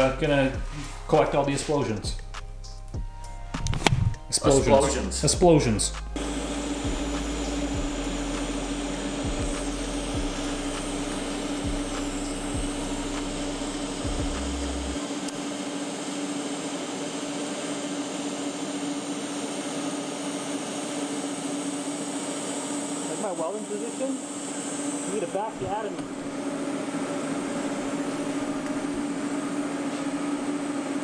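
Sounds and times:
buzzing hum: 0.0 - 15.4, 23.5 - 31.0
welding arc hissing: 6.0 - 29.2.

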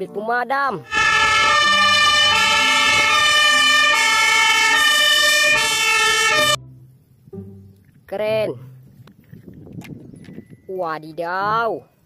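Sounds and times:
fire engine two-tone siren: 0.8 - 6.6.

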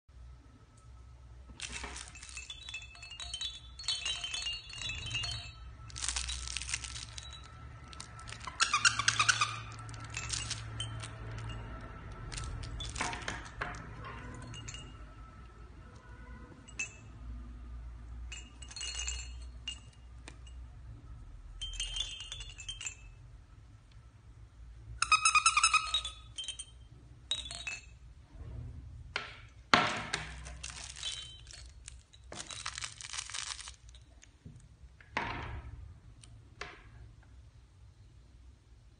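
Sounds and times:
small wind chimes tinkling: 1.6 - 23.7, 25.0 - 28.2, 30.4 - 34.4.

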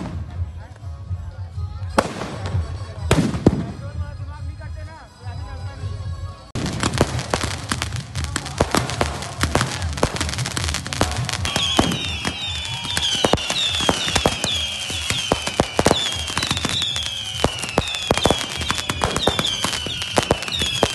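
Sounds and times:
firecracker bangs and pops: 0.0 - 0.6, 1.9 - 4.0, 6.6 - 20.9
high whistles dropping in pitch: 11.4 - 20.9.

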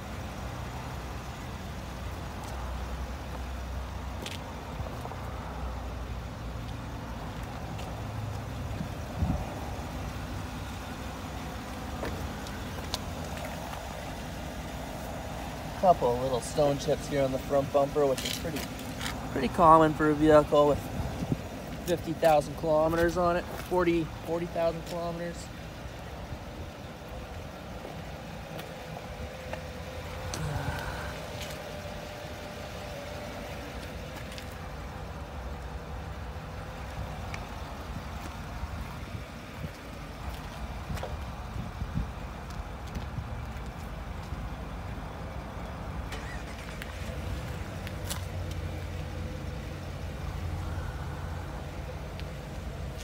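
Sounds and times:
vehicle engine rumbling: 0.0 - 53.0.

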